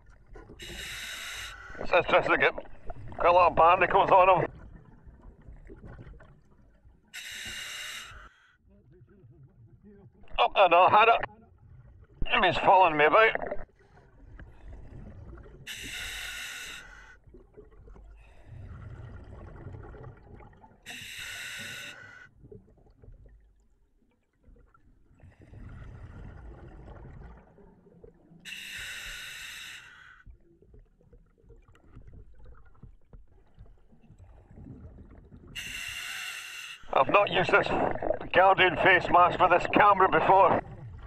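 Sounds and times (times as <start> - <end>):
regulator hissing breaths in: 7.2 - 8.4, 15.7 - 17.1, 20.9 - 22.2, 28.5 - 30.2, 35.6 - 36.8
exhaled breath and bubbles: 13.3 - 23.7, 24.4 - 41.0.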